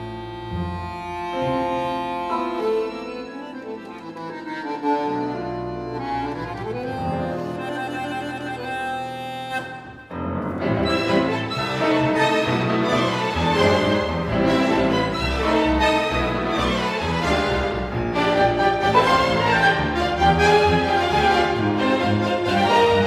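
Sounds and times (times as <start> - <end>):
bandoneon slow melody: 0.0 - 23.0
string orchestra playing: 0.0 - 23.0.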